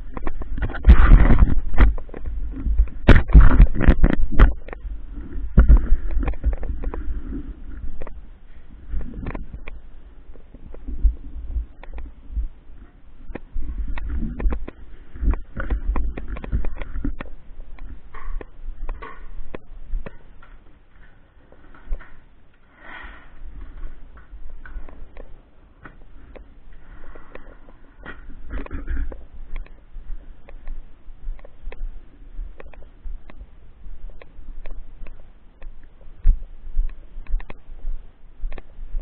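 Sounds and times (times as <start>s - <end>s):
clothing rubbing on microphone: 0.0s - 35.0s
camera movement rumble: 0.0s - 39.0s
heavy footstep thumps: 0.4s - 7.2s.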